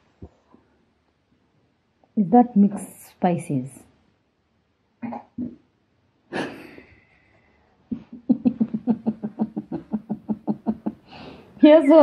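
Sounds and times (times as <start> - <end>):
woman laughing: 6.3 - 6.9, 7.9 - 11.3.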